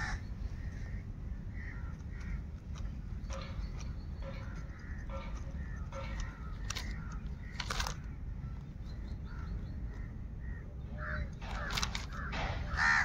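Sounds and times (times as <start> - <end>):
crows cawing: 0.0 - 3.6, 4.2 - 13.0
steady low rumble: 0.0 - 13.0
sharp clicks: 1.8 - 8.2.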